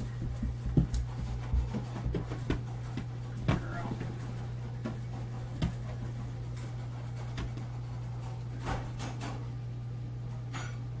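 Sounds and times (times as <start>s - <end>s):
taps and rubs on exercise ball: 0.0s - 7.8s.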